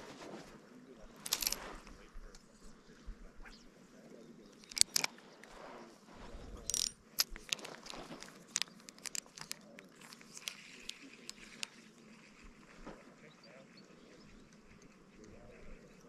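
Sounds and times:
fishing reel clicking and crunching: 1.2 - 2.0, 4.5 - 5.6, 6.5 - 12.8.

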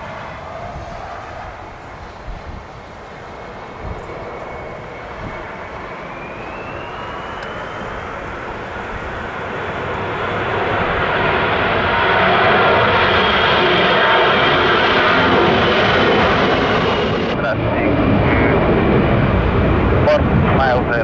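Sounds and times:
jet engines spooling up: 0.0 - 21.0
fan whine rising in pitch: 3.6 - 15.3.

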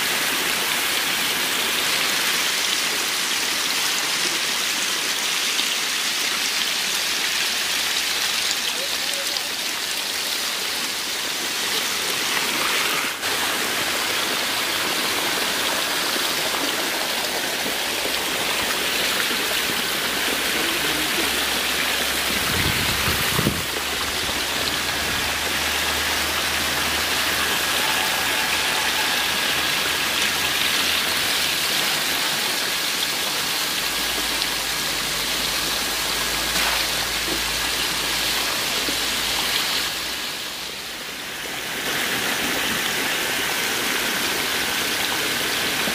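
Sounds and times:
water pouring into tanks: 0.0 - 45.9
fish splashing: 35.0 - 40.2.

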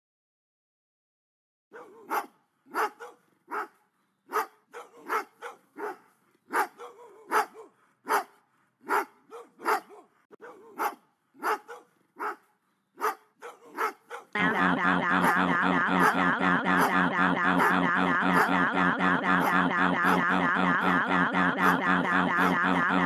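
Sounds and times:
dogs barking: 1.7 - 14.4.

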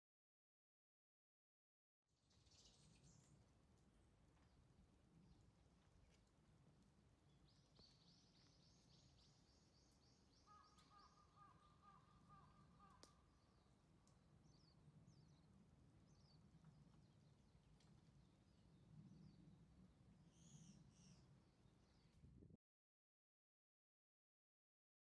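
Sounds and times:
bird chirping: 2.2 - 3.4, 7.3 - 13.8, 20.3 - 22.2.

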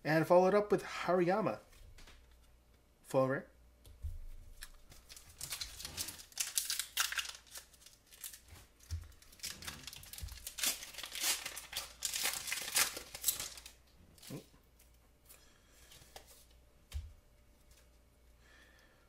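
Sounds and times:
foil wrapper tearing and crinkling: 4.9 - 14.4.

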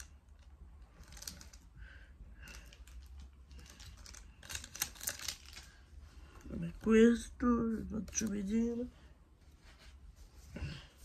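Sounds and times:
foil wrapper crinkling and tearing: 1.0 - 1.6, 2.4 - 5.8.

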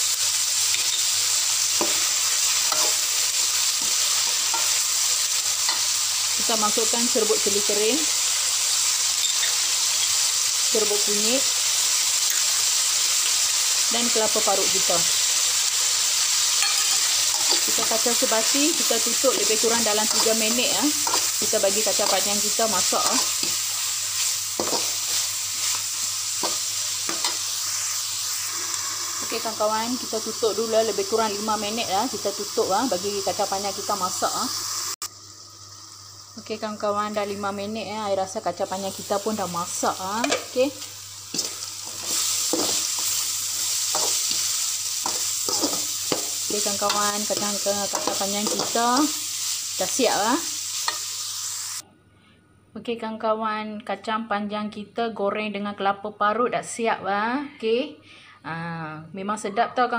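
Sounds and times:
beans sizzling in a wok: 0.0 - 51.8
metal spatula scraping a wok: 2.6 - 3.1, 16.5 - 18.0, 18.8 - 28.0, 41.3 - 49.6.

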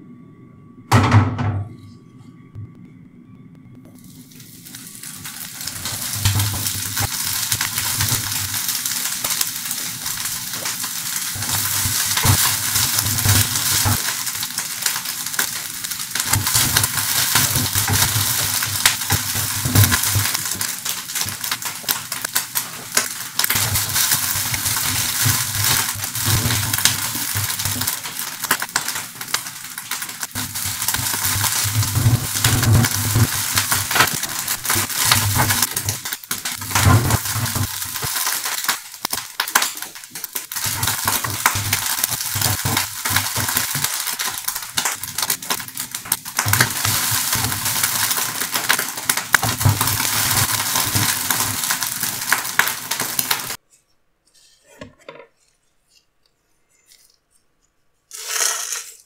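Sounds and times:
meat sizzling in a pan: 3.9 - 53.6.

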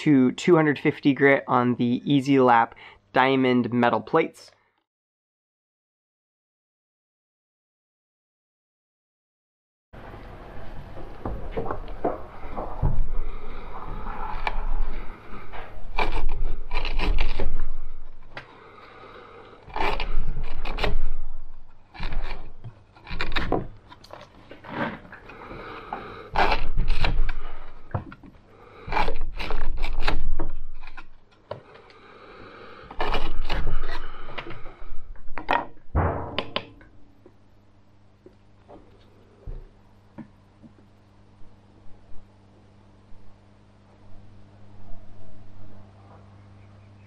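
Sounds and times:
knife slicing through rope: 19.7 - 23.7, 26.3 - 27.6.

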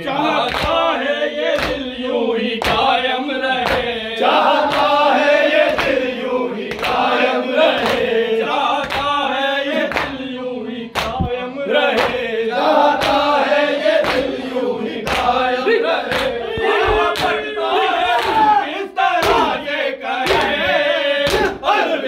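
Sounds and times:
men chanting in unison: 0.0 - 22.0
hands slapping on chests: 0.5 - 0.9, 1.6 - 2.0, 2.6 - 3.0, 3.6 - 4.0, 4.6 - 5.0, 5.6 - 6.1, 6.7 - 8.1, 8.8 - 9.2, 9.8 - 10.2, 10.9 - 13.4, 14.0 - 15.4, 16.0 - 17.4, 18.1 - 18.6, 19.2 - 19.6, 20.2 - 20.6, 21.2 - 21.6.

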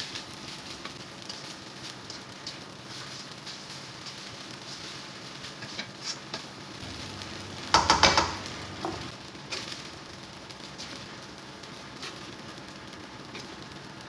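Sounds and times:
fried rice sizzling in a wok: 0.0 - 14.0
spatula scraping and tapping pan: 0.1 - 6.6, 7.6 - 9.8.

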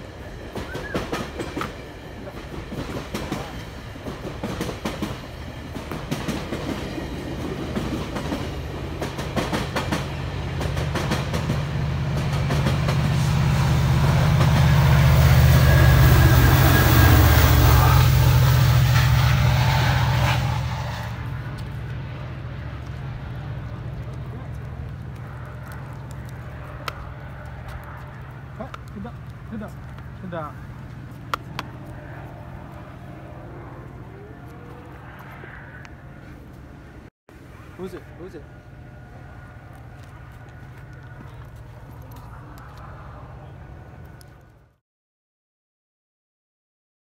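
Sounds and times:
train wheels clicking over rails: 0.0 - 31.9
deep diesel drone: 10.0 - 44.8.

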